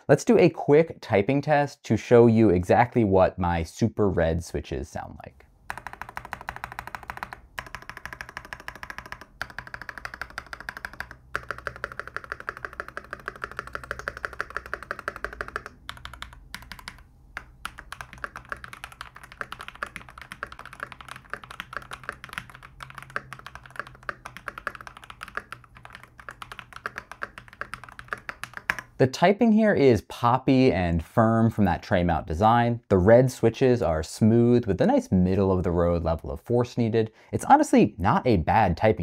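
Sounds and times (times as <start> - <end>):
mechanical keyboard typing: 5.7 - 29.0.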